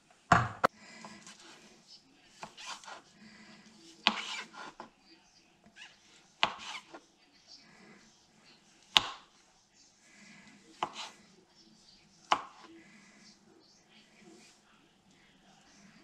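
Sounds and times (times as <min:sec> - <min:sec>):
knife chopping on cutting board: 0:00.3 - 0:00.7, 0:02.4 - 0:03.0, 0:04.0 - 0:04.9, 0:06.4 - 0:07.0, 0:08.9 - 0:09.3, 0:10.8 - 0:11.2, 0:12.3 - 0:12.7.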